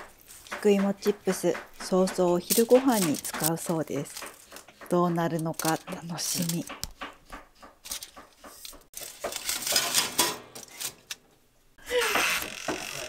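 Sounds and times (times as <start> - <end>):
tray clattering: 7.8 - 11.1.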